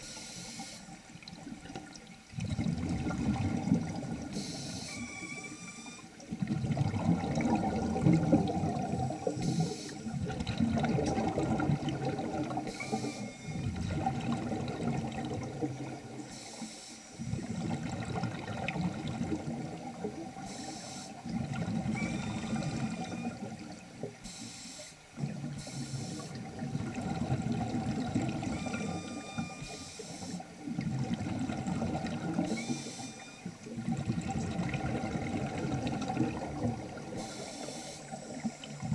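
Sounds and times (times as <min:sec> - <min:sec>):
regulator inhalation hiss: 0:00.0 - 0:01.0, 0:04.3 - 0:05.8, 0:09.3 - 0:10.1, 0:16.3 - 0:17.3, 0:20.4 - 0:21.2, 0:24.2 - 0:25.0, 0:25.6 - 0:26.4, 0:37.2 - 0:38.5
exhaled bubbles gurgling: 0:00.9 - 0:16.6, 0:17.2 - 0:24.2, 0:25.0 - 0:38.9.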